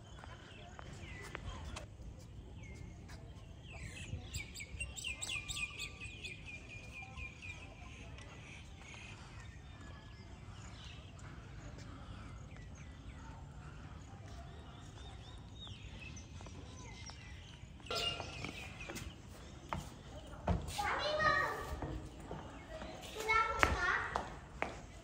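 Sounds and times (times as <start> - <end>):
bird calling: 17.9 - 19.2.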